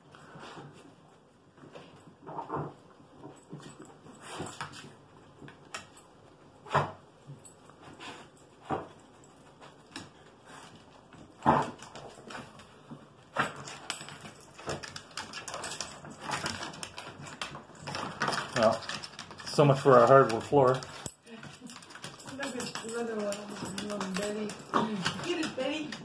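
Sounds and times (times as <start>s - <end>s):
dogs snorting and sniffing: 6.1s - 26.0s.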